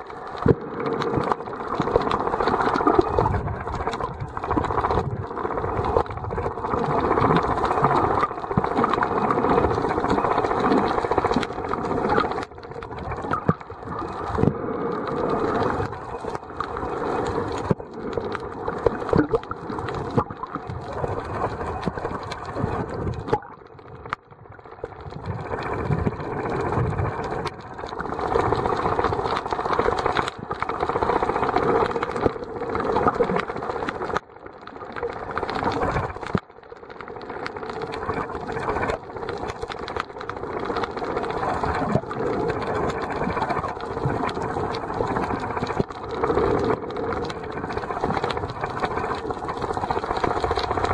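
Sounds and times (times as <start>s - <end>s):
muffled underwater rush: 0.0s - 50.9s.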